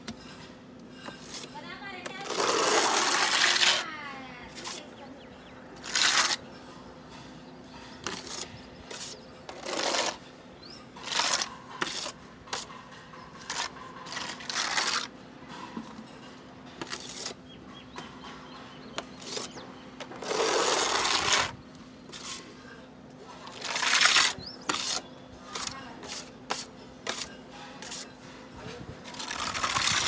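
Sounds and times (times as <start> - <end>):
trowel scraping putty on wall: 1.0 - 1.5, 2.1 - 3.8, 4.5 - 4.9, 5.8 - 6.5, 8.0 - 10.3, 11.0 - 12.8, 13.4 - 15.8, 16.8 - 17.4, 19.0 - 22.6, 23.4 - 28.2, 29.1 - 30.0.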